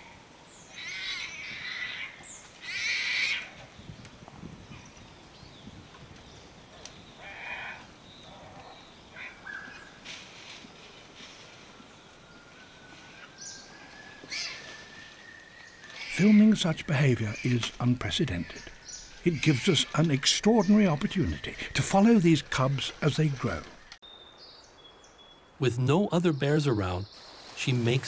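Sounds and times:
tiger cub crying: 0:00.7 - 0:03.6, 0:15.9 - 0:22.8
rustling in dry leaves: 0:04.9 - 0:25.0, 0:27.2 - 0:28.0.

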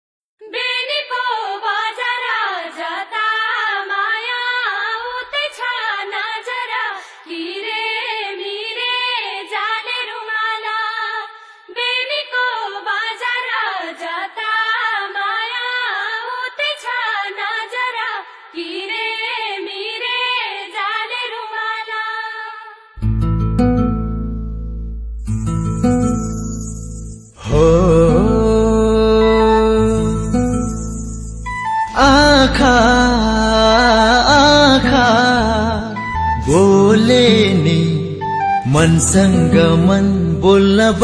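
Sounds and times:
high-pitched voice singing: 0:27.4 - 0:30.6, 0:31.7 - 0:41.0.

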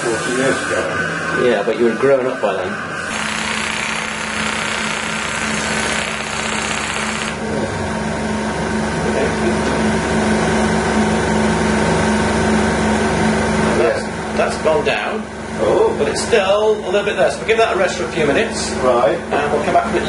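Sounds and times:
steady machine hum: 0:00.0 - 0:20.0
handheld applicator buzzing: 0:03.0 - 0:07.4.

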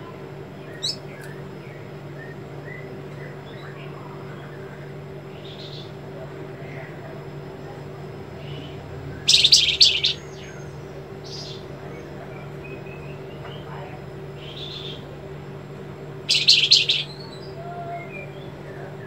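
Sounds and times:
steady low hum: 0:00.0 - 0:19.0
soft bird chirps: 0:00.6 - 0:03.8, 0:08.4 - 0:11.6, 0:16.3 - 0:18.6
bird singing rapid high notes: 0:00.7 - 0:01.0, 0:08.5 - 0:11.6, 0:16.3 - 0:17.5.

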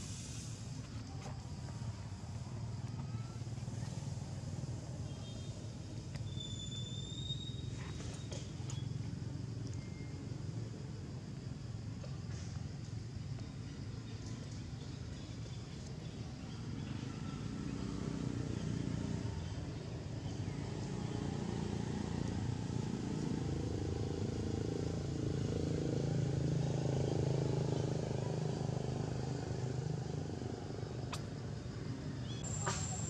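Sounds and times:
vehicle engine passing by: 0:16.9 - 0:33.0.

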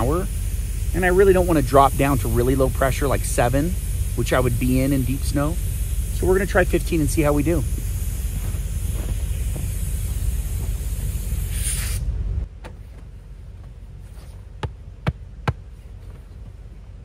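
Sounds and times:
loud steady hiss: 0:00.0 - 0:12.5.

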